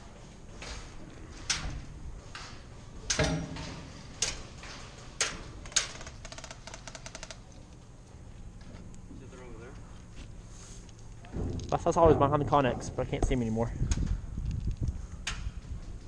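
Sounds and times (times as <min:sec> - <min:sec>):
heavy thump: 0:11.3 - 0:13.5.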